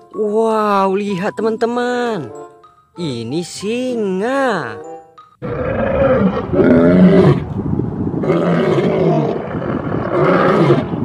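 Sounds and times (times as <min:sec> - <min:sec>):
lions roaring: 0:05.4 - 0:07.5, 0:08.2 - 0:11.0.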